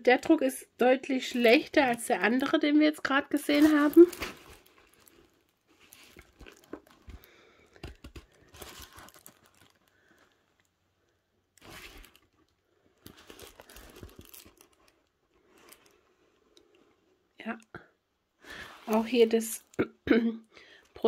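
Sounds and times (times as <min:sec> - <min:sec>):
plastic film crinkling and rustling: 0:01.1 - 0:10.8, 0:11.5 - 0:16.9, 0:18.6 - 0:19.8.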